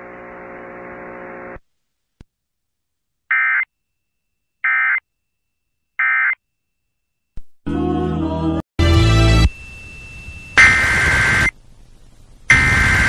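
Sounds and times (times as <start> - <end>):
faint hum: 0.0 - 1.7, 9.3 - 13.0.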